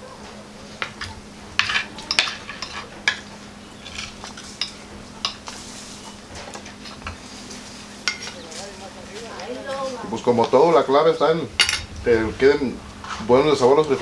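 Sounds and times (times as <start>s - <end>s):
cutlery clinking on plates: 0.8s - 5.6s, 8.0s - 8.5s.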